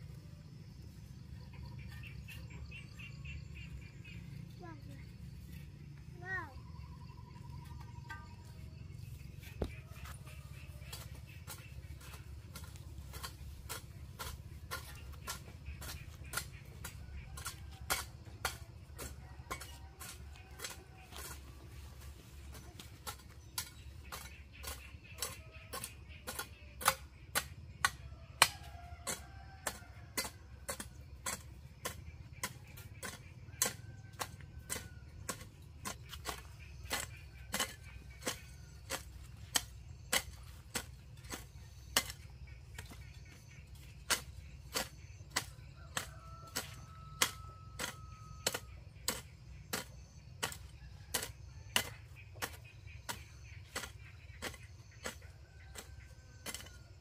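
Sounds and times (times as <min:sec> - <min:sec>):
hoe chopping into soil: 0:23.0 - 0:57.0.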